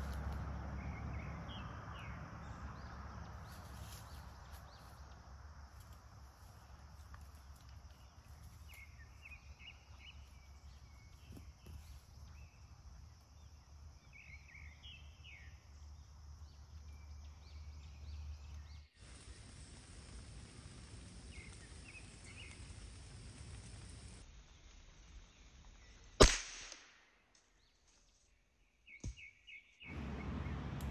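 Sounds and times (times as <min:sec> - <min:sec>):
low wind rumble: 0:00.0 - 0:14.3, 0:29.9 - 0:30.9.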